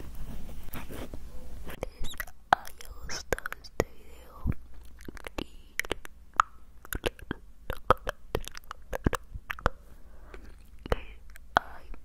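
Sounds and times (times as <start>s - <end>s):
wet mouth clicks and pops: 4.5s - 9.8s.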